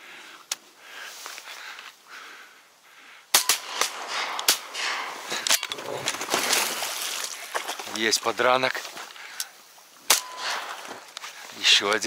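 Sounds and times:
shotgun shot: 3.4s - 6.6s, 10.1s - 10.8s
rustling: 3.4s - 12.0s.

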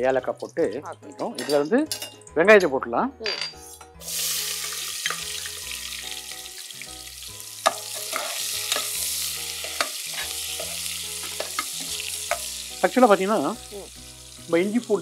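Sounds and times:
onions sizzling in hot oil: 4.0s - 15.0s
metal spatula scraping pan: 7.7s - 9.0s.

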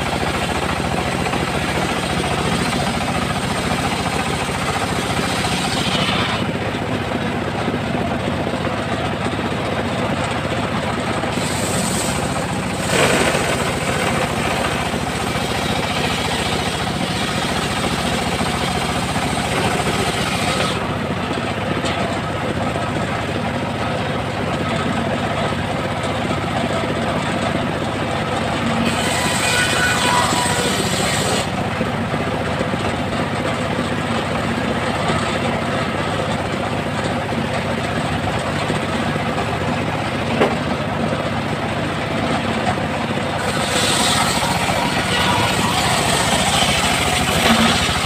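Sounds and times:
circular saw running: 0.0s - 48.0s
saw blade ripping through wood: 11.3s - 17.8s, 43.4s - 48.0s.

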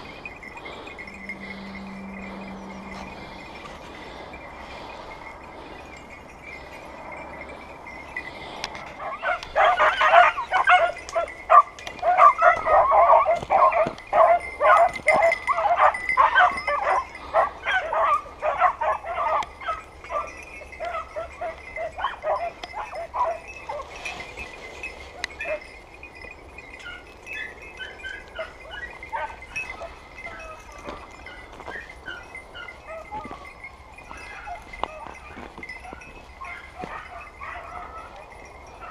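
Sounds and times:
dog barking in yelps: 9.0s - 23.9s, 26.8s - 31.0s, 31.6s - 33.4s, 34.1s - 38.9s.

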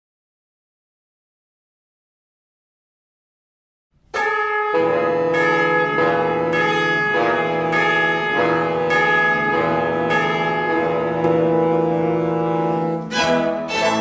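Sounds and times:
bells ringing in steady rhythm: 4.2s - 14.0s.

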